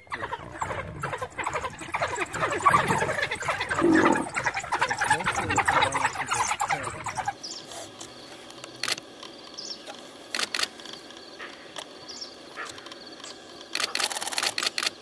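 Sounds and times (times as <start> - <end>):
bird chirping: 0.0 - 8.3
faint outdoor background: 0.0 - 15.0
camera shutter clicks: 10.3 - 10.7, 13.7 - 15.0.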